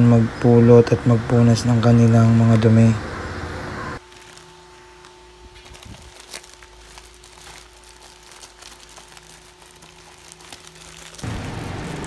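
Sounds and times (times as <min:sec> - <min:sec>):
plastic bag crinkling: 0:04.0 - 0:12.0
loud steady noise: 0:11.2 - 0:12.0.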